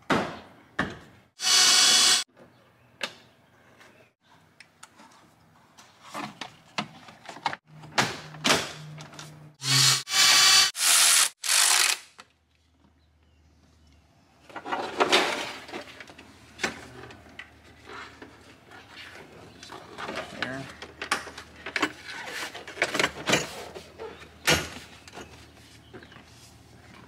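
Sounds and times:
cordless ratchet bursts: 0:09.6 - 0:12.0.

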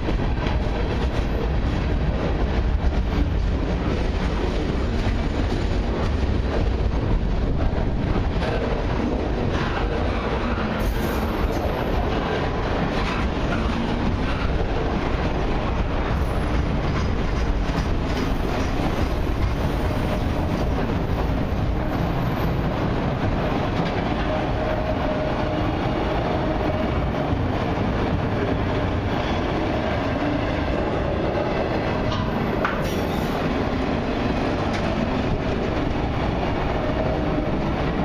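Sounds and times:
freight train rolling past: 0:00.0 - 0:38.0.

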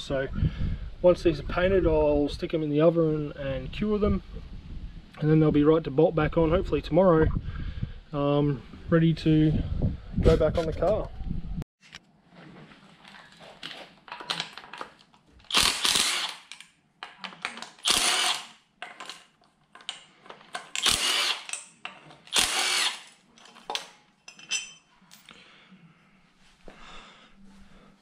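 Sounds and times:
metal parts clicking and rattling: 0:14.1 - 0:25.3
cordless drill spinning: 0:15.4 - 0:16.5, 0:17.8 - 0:18.6, 0:20.7 - 0:21.6, 0:22.3 - 0:23.2.

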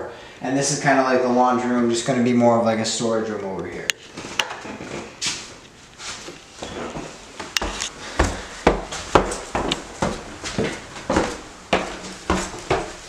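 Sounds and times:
footsteps on wooden stairs: 0:06.2 - 0:13.0.

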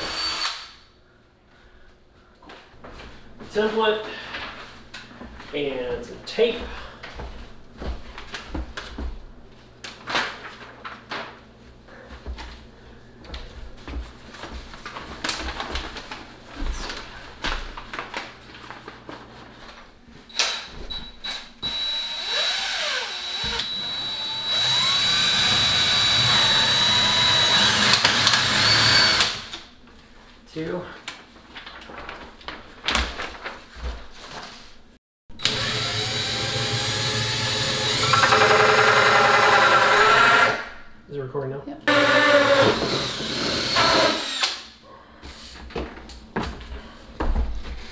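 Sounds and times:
cordless drill boring into wall: 0:00.0 - 0:00.8, 0:20.3 - 0:29.6, 0:35.4 - 0:40.7, 0:41.9 - 0:44.7
paper rustling and crinkling: 0:09.8 - 0:11.6, 0:13.4 - 0:20.0, 0:31.0 - 0:34.8.

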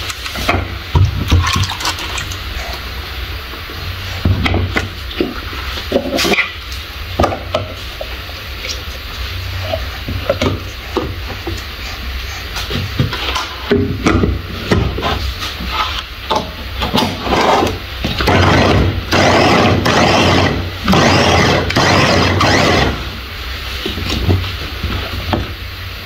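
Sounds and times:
food chopper running: 0:17.2 - 0:23.1.

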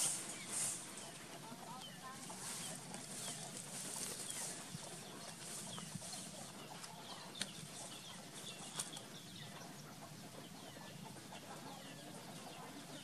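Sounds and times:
steady high hiss: 0:00.0 - 0:02.9
bird calls and chirps: 0:00.0 - 0:13.0.

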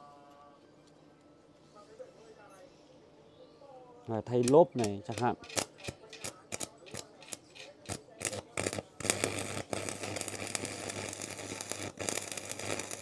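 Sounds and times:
arc welding crackling: 0:04.2 - 0:13.0
sharp clicks: 0:04.4 - 0:09.2.

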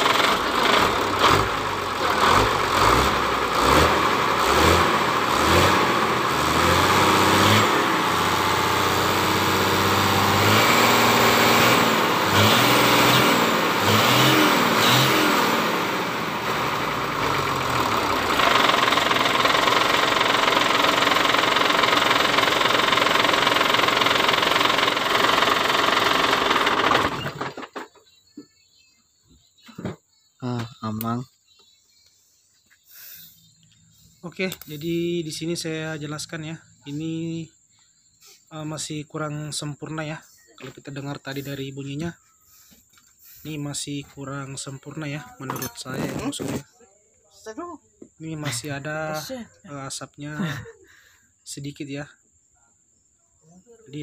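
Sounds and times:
diesel truck engine revving: 0:00.0 - 0:27.8.

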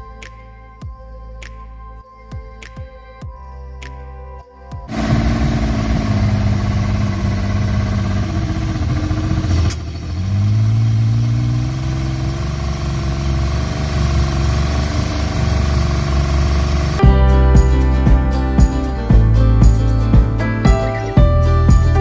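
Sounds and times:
outboard motor running: 0:04.9 - 0:17.1.

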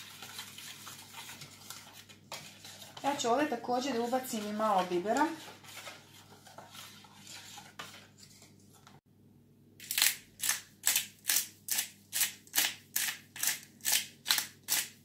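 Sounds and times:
faint kitchen clatter: 0:00.0 - 0:09.0.

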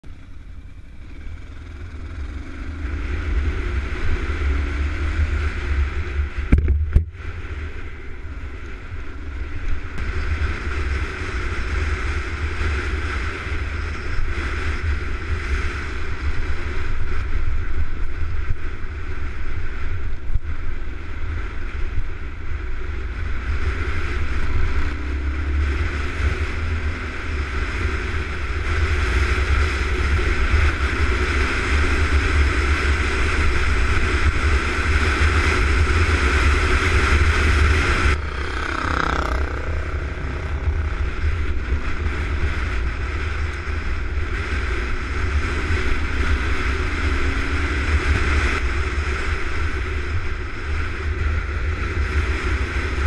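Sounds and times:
motorcycle engine running: 0:00.0 - 0:53.0
wind buffeting microphone: 0:00.0 - 0:53.0.

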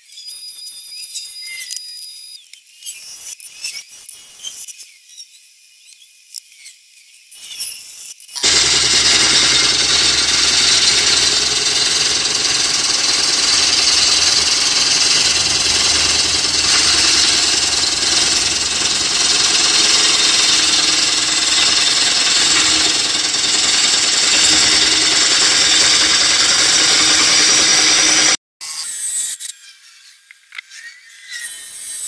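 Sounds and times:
gouge hissing on spinning wood: 0:08.4 - 0:28.4
lathe running: 0:08.4 - 0:28.4.

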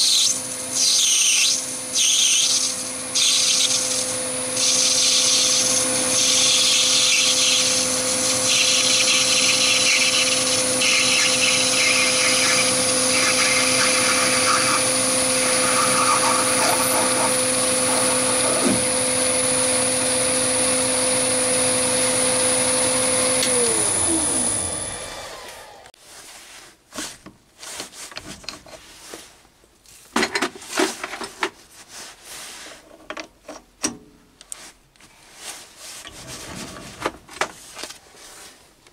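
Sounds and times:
lathe motor whining: 0:00.1 - 0:25.9
lathe spinning down: 0:02.8 - 0:25.9.

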